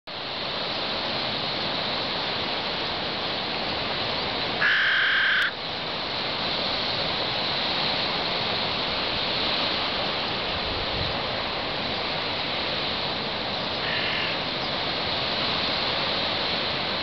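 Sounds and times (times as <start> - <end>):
steady rushing noise: 0.1 - 17.0
crow cawing: 4.6 - 5.6, 13.8 - 14.4.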